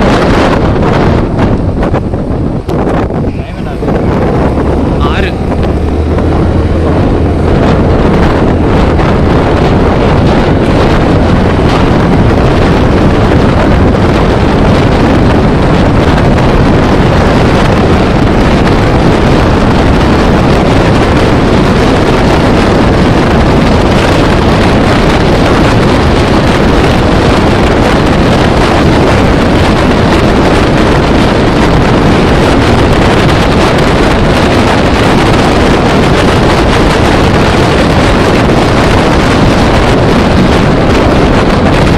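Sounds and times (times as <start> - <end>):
wind buffeting microphone: 0.0 - 41.9.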